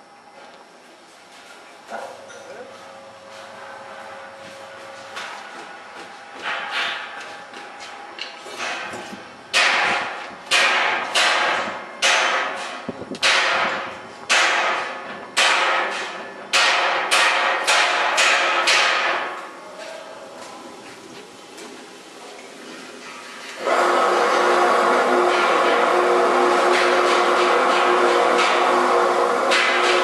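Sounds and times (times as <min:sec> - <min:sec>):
steel skimmer clattering in fryer: 0:25.2 - 0:30.0.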